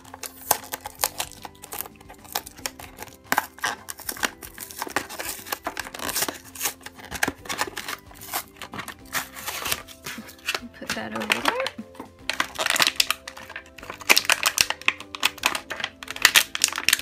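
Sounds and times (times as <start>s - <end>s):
plastic packaging crinkling and tearing: 0.0s - 17.0s.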